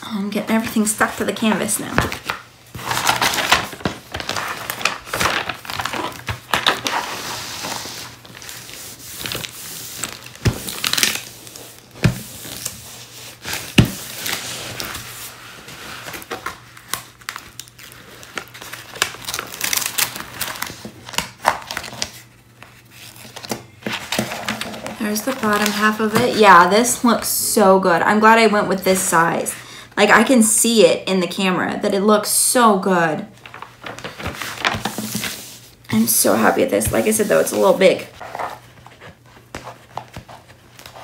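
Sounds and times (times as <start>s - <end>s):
plastic film crinkling: 1.4s - 26.6s.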